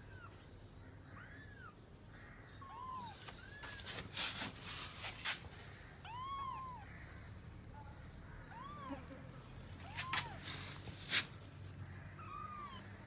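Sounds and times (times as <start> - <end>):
loud rustling and scuffing: 3.2 - 5.7, 9.8 - 11.6
kittens mewing: 8.5 - 10.9.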